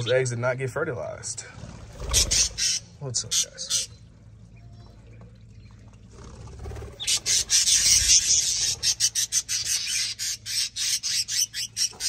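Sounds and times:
budgerigars chattering and squawking: 0:00.0 - 0:00.4, 0:01.9 - 0:04.0, 0:06.9 - 0:12.0.

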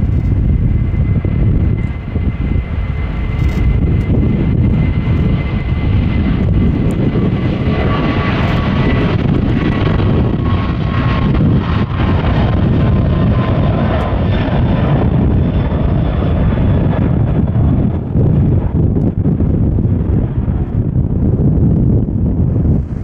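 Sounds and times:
high jet engine whine: 0:00.0 - 0:23.0
jet engines rumbling: 0:00.0 - 0:23.0.

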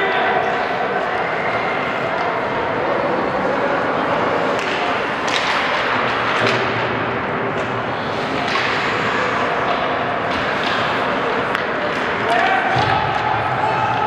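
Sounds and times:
rink and spectator noise: 0:00.0 - 0:14.0
hockey sticks and puck knocking: 0:04.3 - 0:14.0.

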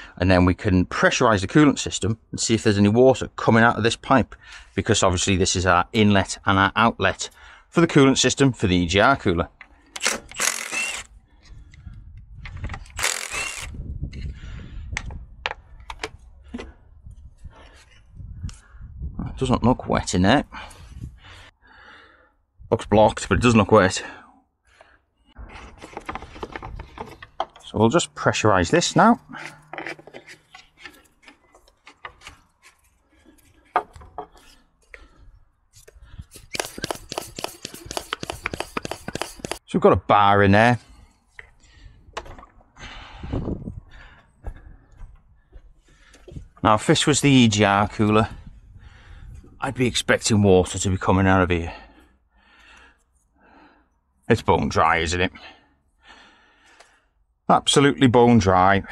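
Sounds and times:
cordless power tool burst: 0:10.0 - 0:11.1, 0:12.9 - 0:13.8, 0:36.3 - 0:39.6
sharp clicks: 0:12.8 - 0:13.7, 0:36.4 - 0:39.6.

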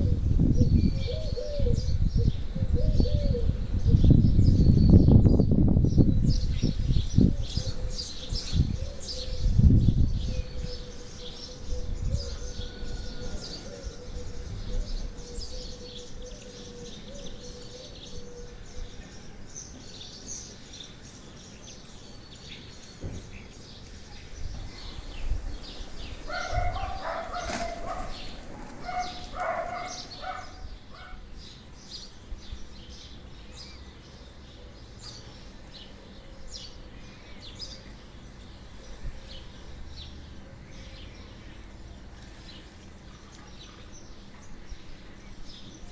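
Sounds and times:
small birds chirping and twittering: 0:00.0 - 0:45.9.

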